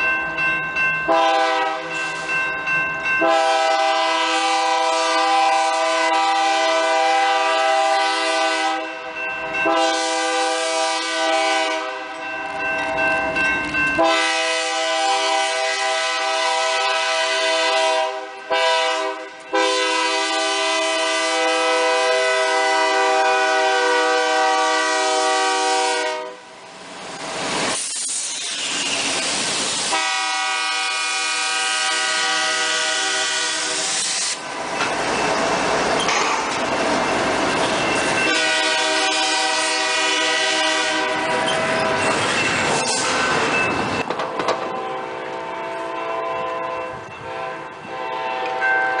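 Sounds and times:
train passing rumble: 0:00.0 - 0:49.0
locomotive air horn blasts: 0:01.1 - 0:01.9, 0:03.2 - 0:12.1, 0:14.0 - 0:26.5, 0:29.9 - 0:34.0, 0:38.3 - 0:41.5, 0:44.8 - 0:48.8.

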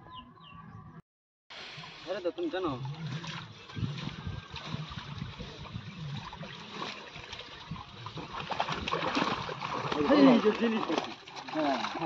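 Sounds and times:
water sloshing and trickling: 0:01.5 - 0:12.0
small splashes: 0:01.8 - 0:12.0.

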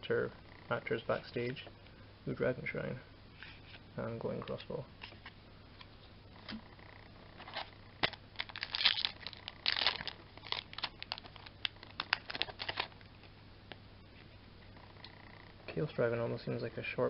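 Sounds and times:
foil wrapper tearing and crinkling: 0:08.0 - 0:13.0.

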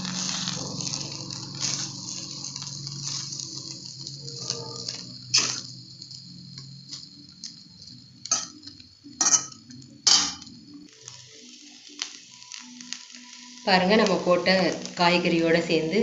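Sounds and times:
rice frying hiss: 0:00.0 - 0:16.0
steel spoon clinking on iron pan: 0:08.3 - 0:08.6, 0:09.2 - 0:10.4.

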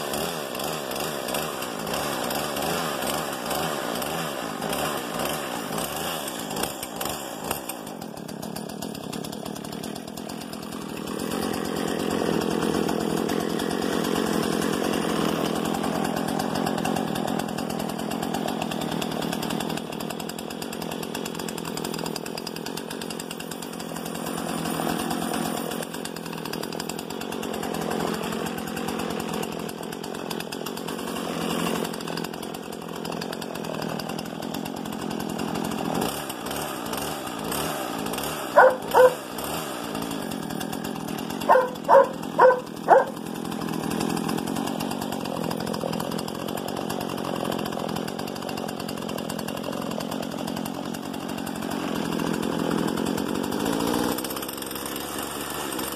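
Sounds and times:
chainsaw running: 0:00.0 - 0:55.9
dog barking: 0:38.5 - 0:39.2, 0:41.4 - 0:43.2.

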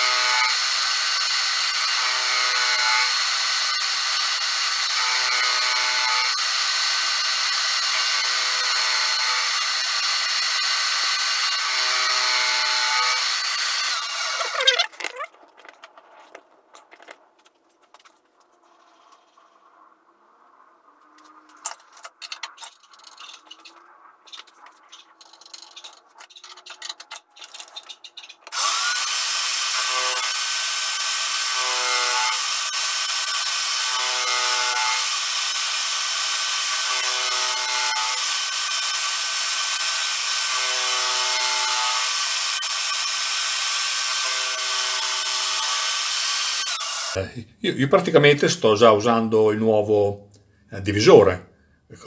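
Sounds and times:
milling spindle whirring: 0:00.0 - 0:15.4, 0:28.4 - 0:47.2.

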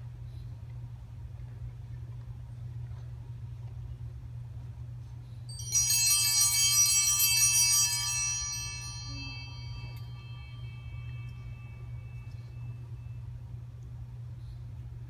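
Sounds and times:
altar bells ringing: 0:05.5 - 0:13.4.

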